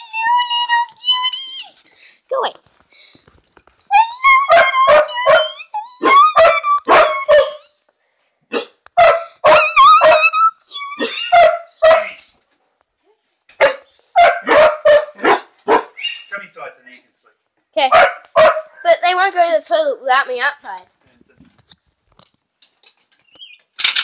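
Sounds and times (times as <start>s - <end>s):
puppy barking high-pitched: 4.4s - 7.7s, 8.5s - 12.2s, 13.6s - 16.1s, 17.8s - 18.8s.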